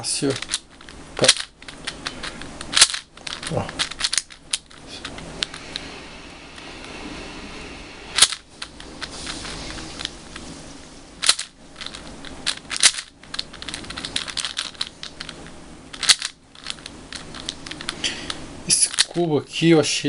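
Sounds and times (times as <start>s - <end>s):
cube layers snapping: 0.3s - 5.2s, 11.2s - 19.2s
plastic puzzle cube clicking: 0.3s - 5.5s, 11.2s - 18.0s.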